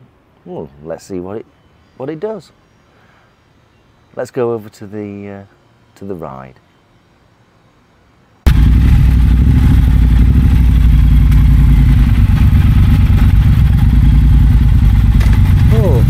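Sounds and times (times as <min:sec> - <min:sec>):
motorcycle engine running loudly: 0:08.5 - 0:16.0.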